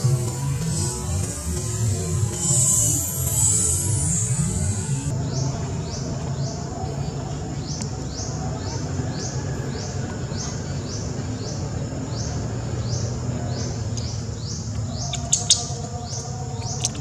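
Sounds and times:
small animal chirping: 0:14.0 - 0:17.0.

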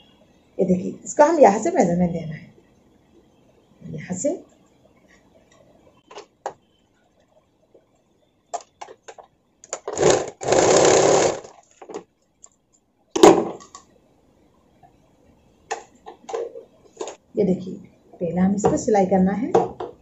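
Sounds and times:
sewing machine running: 0:09.8 - 0:11.5.

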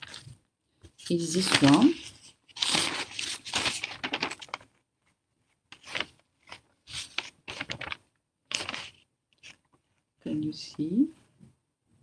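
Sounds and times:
paper rustling and crackling: 0:00.0 - 0:04.8, 0:05.7 - 0:09.8.

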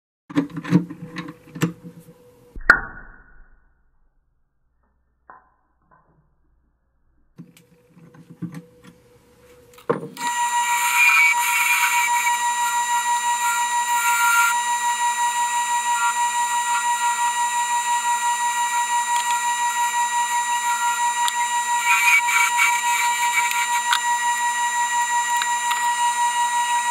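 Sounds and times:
lathe whining: 0:09.5 - 0:26.9
turning tool cutting wood: 0:10.2 - 0:26.9.

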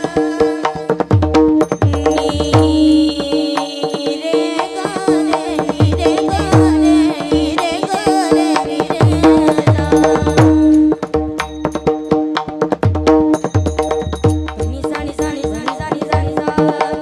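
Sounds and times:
person singing a melody: 0:00.0 - 0:01.2, 0:01.8 - 0:11.0, 0:14.6 - 0:17.0
hand drum bass strokes: 0:00.0 - 0:16.5.

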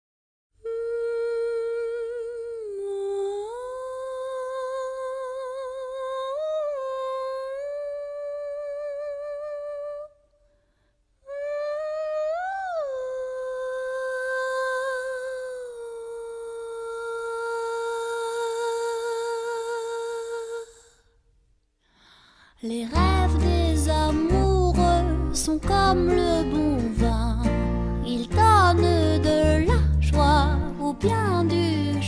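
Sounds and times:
woman humming: 0:00.6 - 0:10.1.

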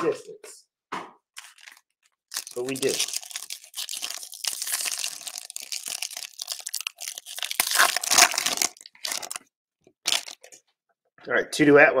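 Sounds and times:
foil wrapper crinkling and tearing: 0:01.4 - 0:10.6.

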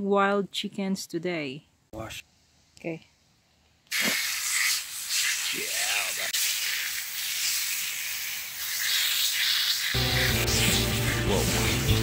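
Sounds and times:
hose water spraying: 0:03.9 - 0:12.0.

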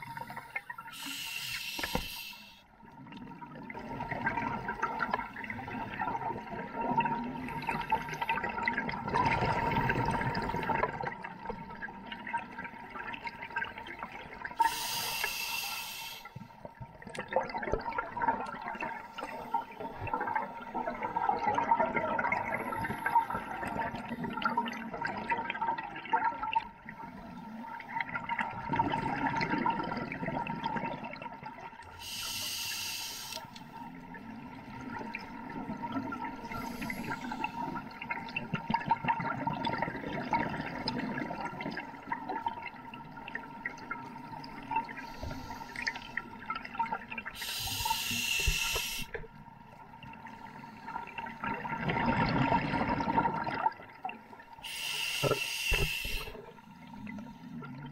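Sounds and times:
hissing inhalation: 0:00.0 - 0:02.6, 0:14.6 - 0:16.3, 0:32.0 - 0:33.5, 0:36.5 - 0:37.7, 0:47.4 - 0:49.2, 0:54.6 - 0:56.4.

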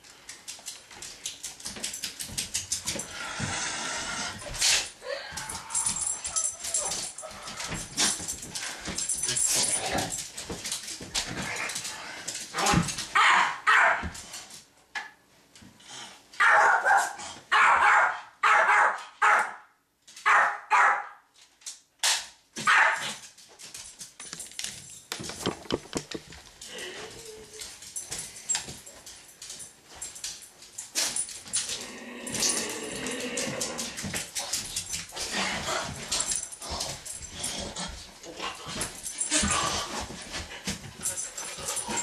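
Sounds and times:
dog barking: 0:13.2 - 0:14.0, 0:16.4 - 0:19.7, 0:20.3 - 0:21.2, 0:22.7 - 0:23.1.

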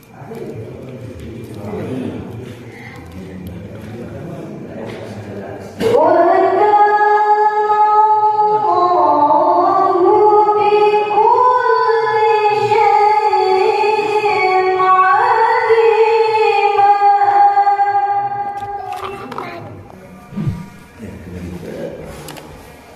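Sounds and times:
woman reciting melodically: 0:05.8 - 0:19.9.

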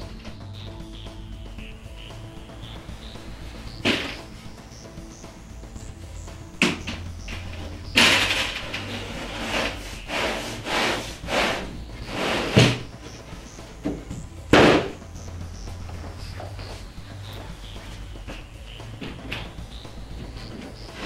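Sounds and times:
wood scraping on wood: 0:07.5 - 0:12.9.

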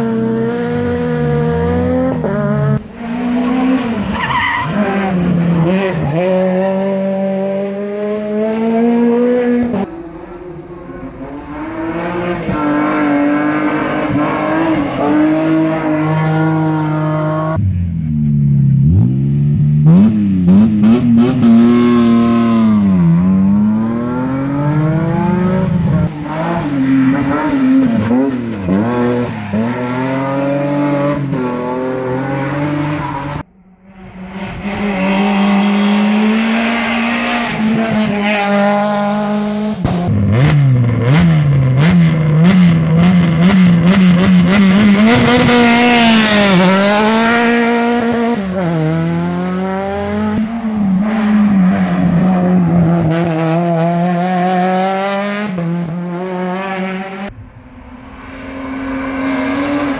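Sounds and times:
rally car engines revving: 0:00.0 - 0:59.9.

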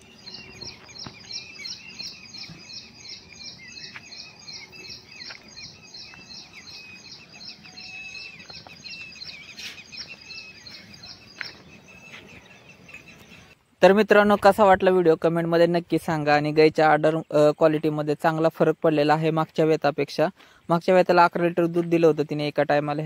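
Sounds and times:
soft bird twittering: 0:00.0 - 0:13.6.

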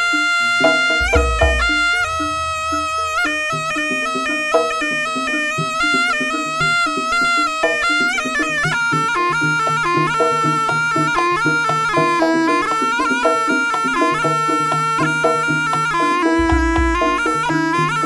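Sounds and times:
gamelan music: 0:00.0 - 0:18.0
reedy shawm melody: 0:00.0 - 0:18.0
deep low gong note: 0:00.6 - 0:04.3.

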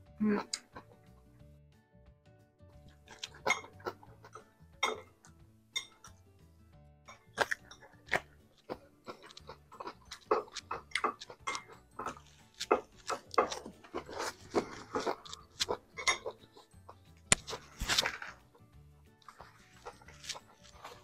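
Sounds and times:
crisp crunching and chewing: 0:02.7 - 0:04.4, 0:07.2 - 0:18.6, 0:19.2 - 0:21.0.

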